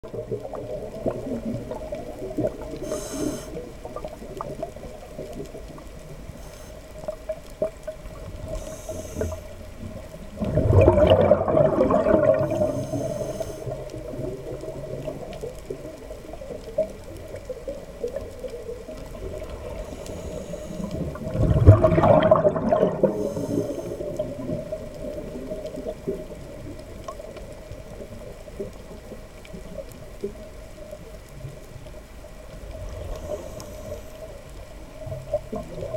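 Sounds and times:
underwater bubbles rushing: 0:00.0 - 0:35.9
steady low hum: 0:19.6 - 0:21.2.

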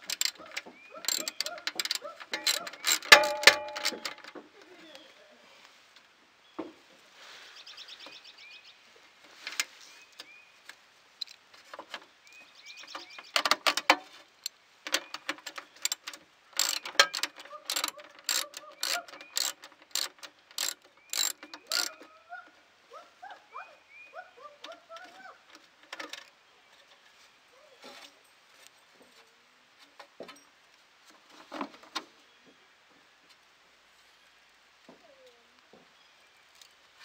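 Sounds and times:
socket ratchet clicking: 0:01.1 - 0:04.3, 0:13.4 - 0:22.0
small birds chirping faintly: 0:04.5 - 0:37.0.

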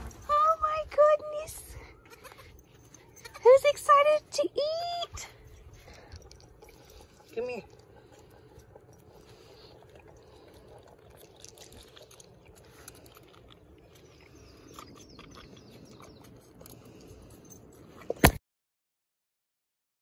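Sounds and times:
goat kid sucking from bottle: 0:02.1 - 0:02.6, 0:05.4 - 0:17.4.

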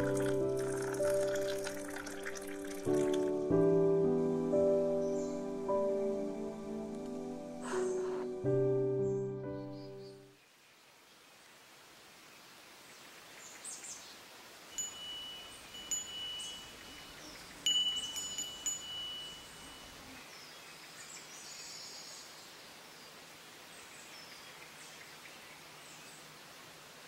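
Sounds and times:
metal wind chime ringing: 0:14.7 - 0:20.1.

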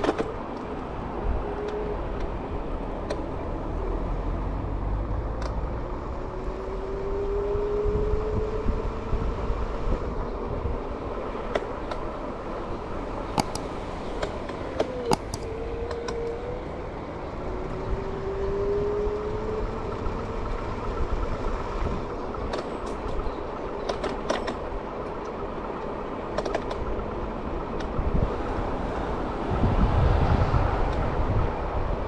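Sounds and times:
scooter wheels rumbling on pavement: 0:05.5 - 0:32.0
sharp rattling clicks: 0:13.3 - 0:16.3.

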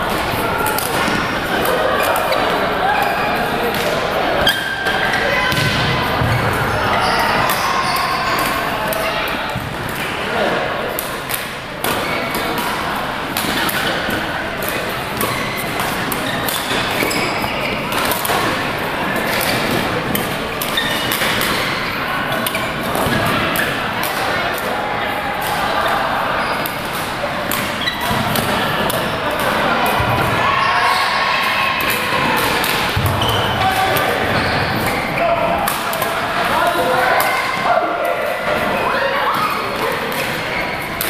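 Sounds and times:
shoes squeaking on court floor: 0:00.0 - 0:10.2, 0:11.0 - 0:31.4, 0:32.0 - 0:35.5, 0:38.4 - 0:41.0
faint chatter: 0:00.0 - 0:41.0
rackets striking shuttlecocks: 0:10.9 - 0:24.7, 0:26.6 - 0:30.4, 0:31.8 - 0:35.0
badminton racket hits: 0:26.6 - 0:30.0.

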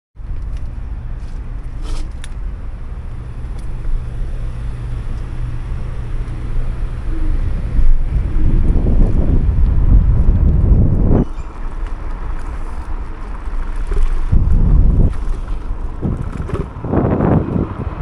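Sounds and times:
scooter road noise: 0:00.2 - 0:18.0
wind buffeting microphone: 0:03.7 - 0:18.0.

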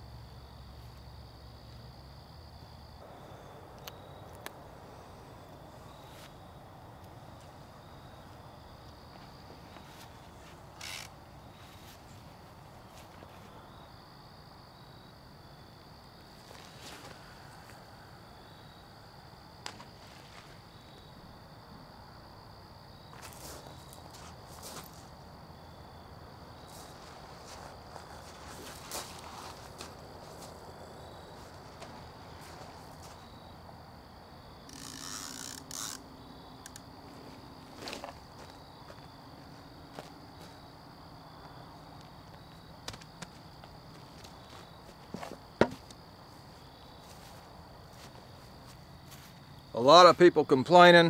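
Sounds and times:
night insects trilling: 0:00.0 - 0:51.0
sharp clicks of fishing gear: 0:10.8 - 0:11.2, 0:34.7 - 0:36.0.

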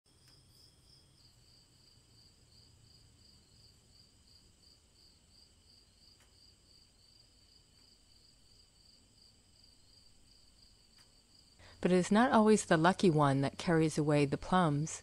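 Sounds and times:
crickets chirping: 0:00.1 - 0:11.8.

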